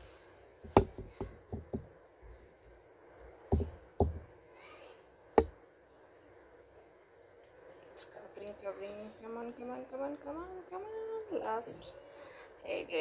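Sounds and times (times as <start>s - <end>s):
canvas knocking on glass cup: 0.7s - 1.9s.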